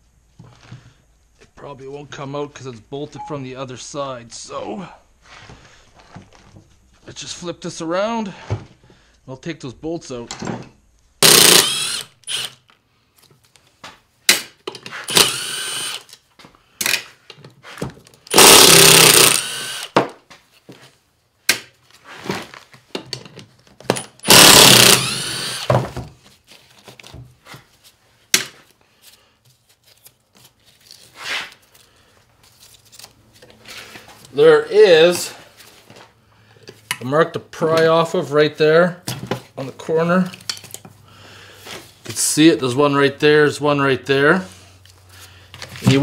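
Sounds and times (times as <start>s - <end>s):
cordless impact driver running: 11.2s - 12.6s, 15.1s - 16.1s, 18.3s - 20.0s, 24.2s - 25.7s.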